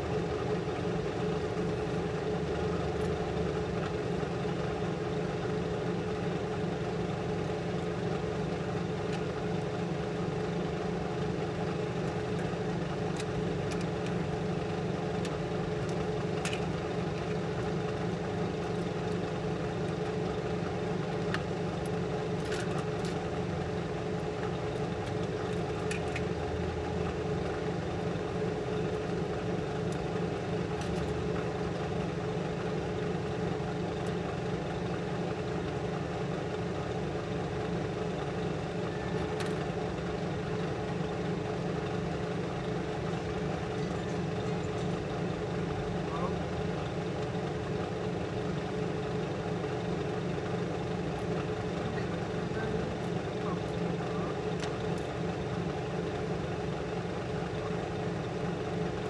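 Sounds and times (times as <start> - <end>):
light clicks and taps of tools: 24.7 - 26.3.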